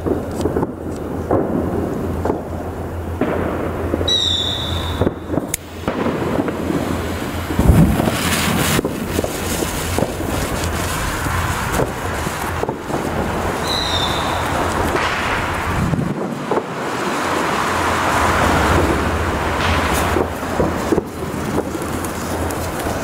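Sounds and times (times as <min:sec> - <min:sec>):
dense crackling: 0:00.0 - 0:23.0
short high whistle: 0:04.1 - 0:05.2, 0:13.6 - 0:14.4
hiss of firework sparks: 0:04.1 - 0:23.0.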